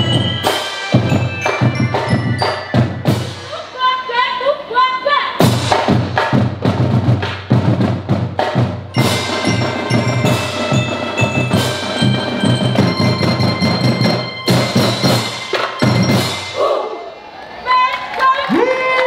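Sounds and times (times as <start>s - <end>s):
mallet bells: 0.0s - 3.6s, 8.9s - 16.8s
drums: 0.0s - 4.1s, 5.3s - 17.7s
melodica chords: 0.0s - 4.2s, 9.0s - 16.8s.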